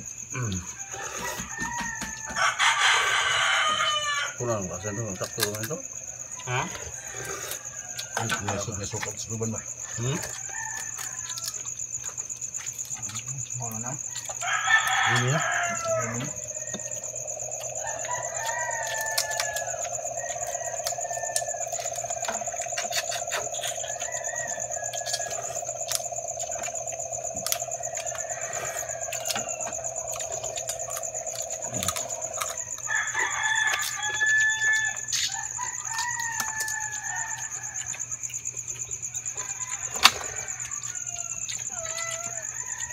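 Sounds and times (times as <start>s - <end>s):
crickets chirping: 0.0s - 42.9s
rooster crowing: 0.4s - 12.1s, 13.6s - 42.9s
crab shells clicking: 5.2s - 5.8s, 10.2s - 38.0s.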